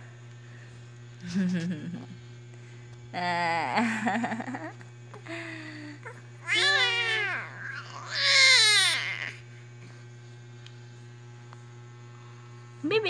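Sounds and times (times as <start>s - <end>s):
steady low hum: 0.0s - 13.0s
toddler crying: 6.1s - 9.4s.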